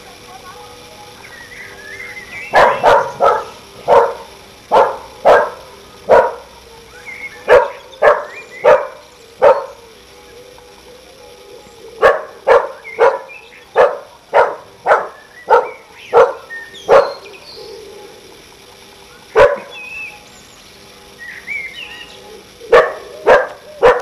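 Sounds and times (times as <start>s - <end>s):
dog barking: 2.5s - 6.5s, 7.5s - 9.8s, 12.0s - 17.2s, 19.4s - 19.7s, 22.7s - 24.0s.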